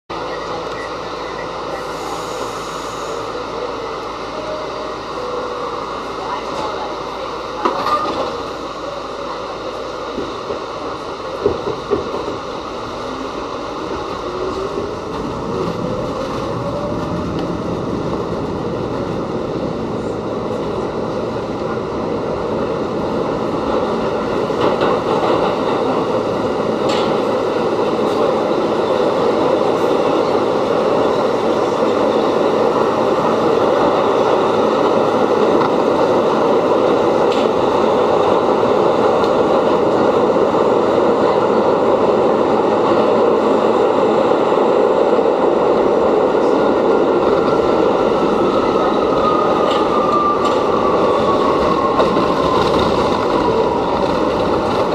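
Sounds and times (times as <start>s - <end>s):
subway train rumbling: 0.0s - 54.9s.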